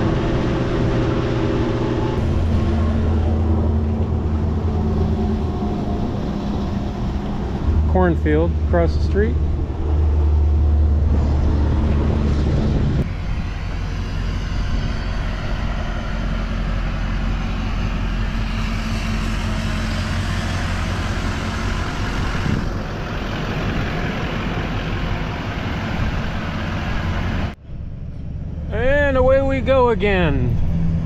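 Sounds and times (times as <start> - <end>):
truck diesel engine running: 0.0 - 31.0.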